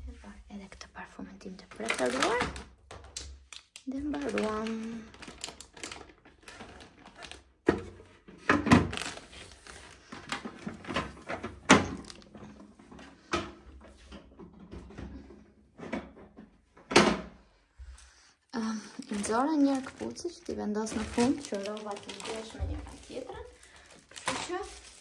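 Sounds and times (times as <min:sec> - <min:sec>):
plastic knocks and clacks: 0:01.6 - 0:09.1, 0:10.1 - 0:17.4.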